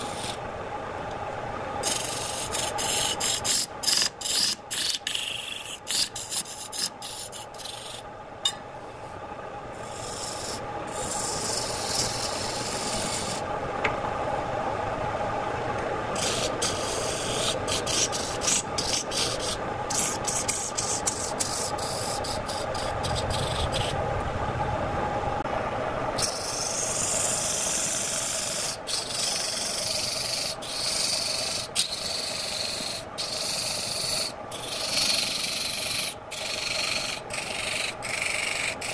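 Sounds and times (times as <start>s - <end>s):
chisel scraping spinning wood: 1.8s - 8.1s, 9.9s - 13.4s, 16.2s - 24.0s, 26.2s - 38.9s.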